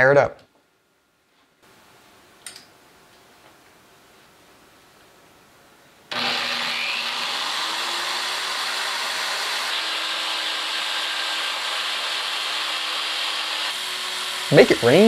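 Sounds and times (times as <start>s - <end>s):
electric drill running: 6.1s - 15.0s.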